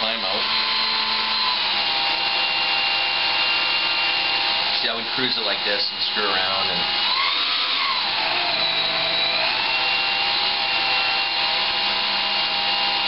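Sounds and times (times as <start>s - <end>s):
electric motor propeller whine: 0.0s - 13.0s.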